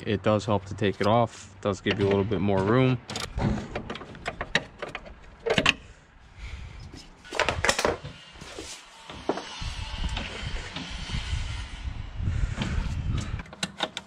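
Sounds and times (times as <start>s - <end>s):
hand tools clicking and knocking: 13.4s - 14.0s.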